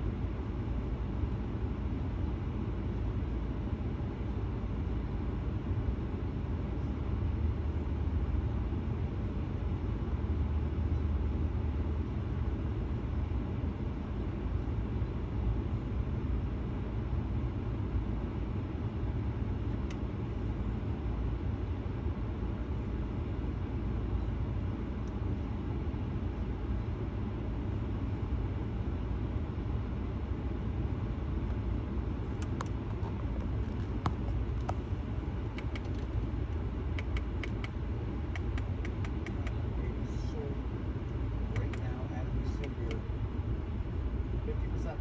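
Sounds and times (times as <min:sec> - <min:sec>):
low rumble inside car: 0:00.0 - 0:45.0
faint click: 0:19.8 - 0:20.0
car engine idling: 0:26.9 - 0:44.9.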